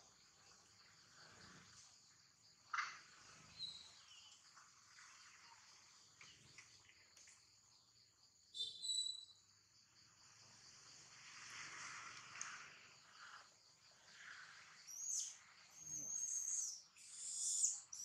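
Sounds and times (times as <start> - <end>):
high-pitched insect chorus: 0.0 - 18.0
short chirping calls: 3.4 - 4.4, 8.5 - 9.4, 14.4 - 18.0.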